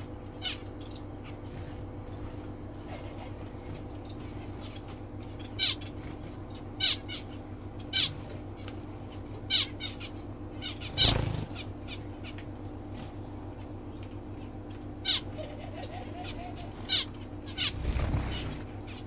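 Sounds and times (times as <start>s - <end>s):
birds calling: 0.0s - 19.0s
steady low hum: 0.0s - 19.0s.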